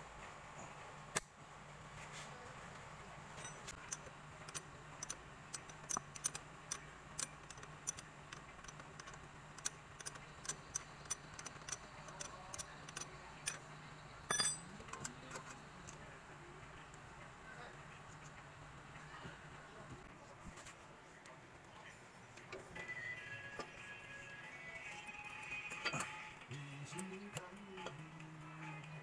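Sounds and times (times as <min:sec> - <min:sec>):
faint low hum: 0:00.0 - 0:29.0
metallic clicks of bolt turning: 0:03.4 - 0:13.6
metal clatter: 0:14.3 - 0:15.5.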